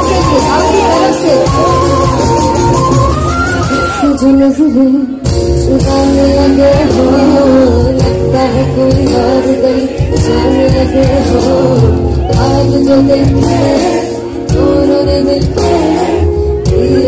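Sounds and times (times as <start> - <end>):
live band playing: 0.0 - 17.0
woman singing long notes: 4.0 - 13.6.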